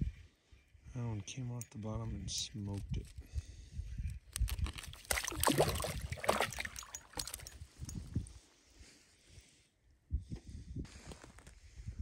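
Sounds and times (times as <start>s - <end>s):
water splashing and sloshing: 4.4s - 7.6s.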